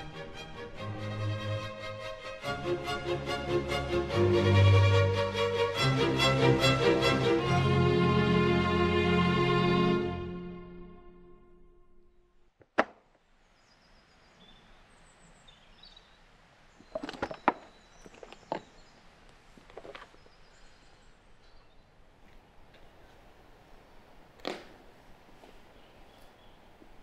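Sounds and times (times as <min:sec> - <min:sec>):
small birds chirping: 0:13.2 - 0:23.2, 0:25.0 - 0:27.0.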